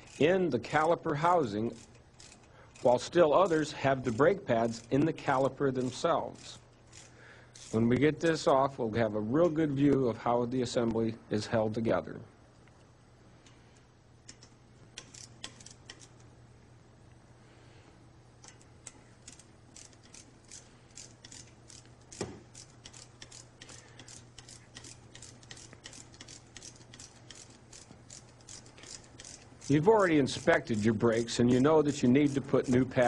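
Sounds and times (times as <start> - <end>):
ratchet wrench clicking: 0.0 - 7.8, 14.2 - 16.3, 18.4 - 33.0.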